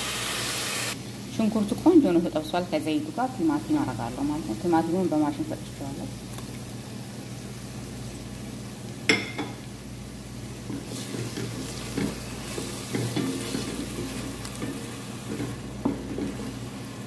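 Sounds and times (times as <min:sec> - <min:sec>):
oil sizzling in a pot: 0:00.0 - 0:17.0
wooden spoon scraping a pot: 0:10.6 - 0:16.6.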